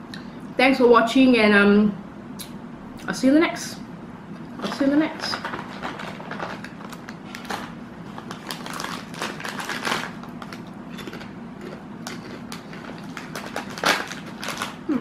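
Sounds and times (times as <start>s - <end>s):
foil chip bag crinkling: 4.6s - 15.0s.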